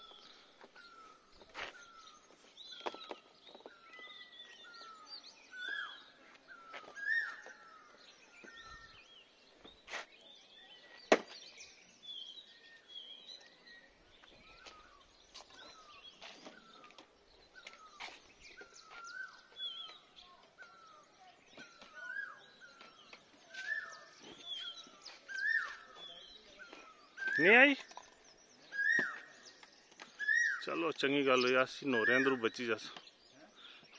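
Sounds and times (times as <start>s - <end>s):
birds chirping and singing: 0.0s - 33.9s.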